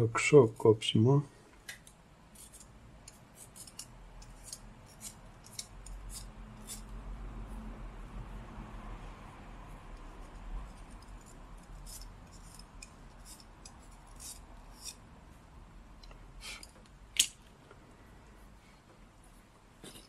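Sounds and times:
knife scraping charcoal: 2.3 - 6.9, 10.0 - 15.0.

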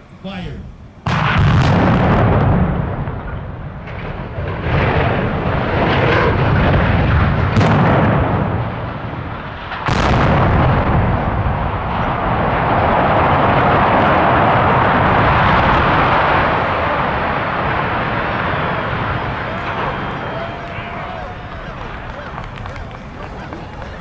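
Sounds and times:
demolition blasts rumbling: 0.7 - 24.0
sharp explosive cracks: 1.0 - 23.8
structure collapsing rumble: 1.0 - 24.0.

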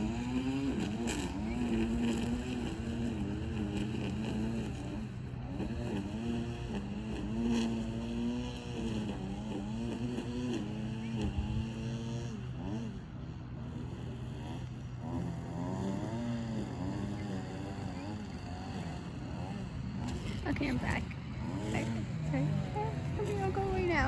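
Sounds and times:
motor humming: 0.0 - 24.0.

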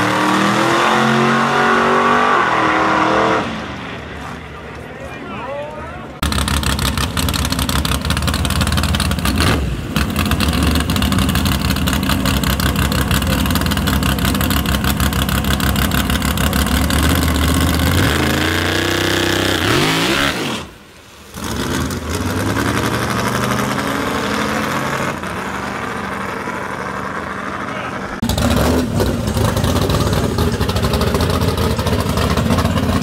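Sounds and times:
drag race car engines revving: 0.0 - 4.9, 6.0 - 33.0.

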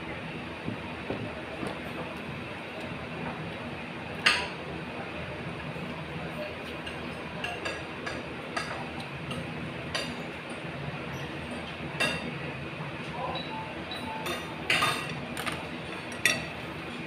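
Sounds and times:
utensils clinking against a dish: 14.2 - 16.6.

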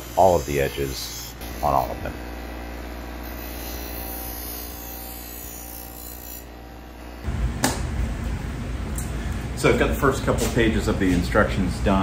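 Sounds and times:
bench grinder motor humming: 0.0 - 7.3
metal strip grinding on wheel: 3.1 - 6.8.

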